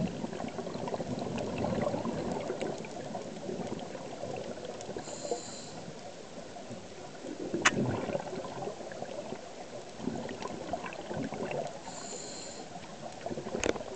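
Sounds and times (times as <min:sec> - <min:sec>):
bubbles gurgling underwater: 0:00.0 - 0:05.2, 0:05.8 - 0:12.1, 0:12.7 - 0:13.9
regulator inhale hiss: 0:05.0 - 0:05.9, 0:11.8 - 0:12.8.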